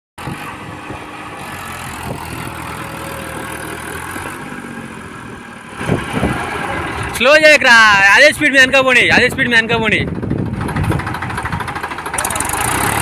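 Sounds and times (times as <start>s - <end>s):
tractor diesel engine running: 0.2s - 13.0s.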